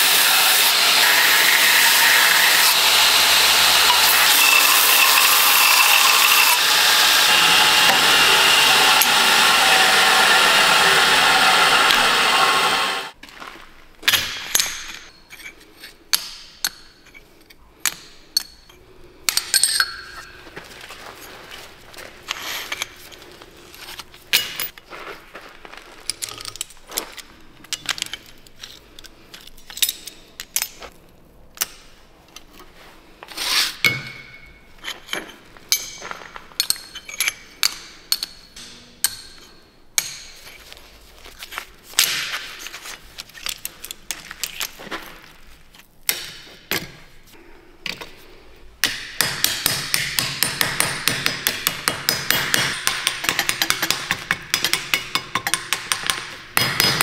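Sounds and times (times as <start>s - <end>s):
steel plates clinking and sliding: 3.4s - 7.2s, 33.4s - 40.7s.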